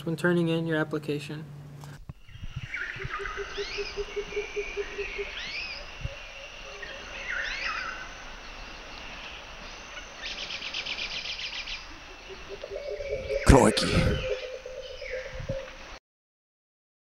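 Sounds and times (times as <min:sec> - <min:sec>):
swooping bird calls: 0:02.1 - 0:16.0
rapid bird trill: 0:02.2 - 0:08.1.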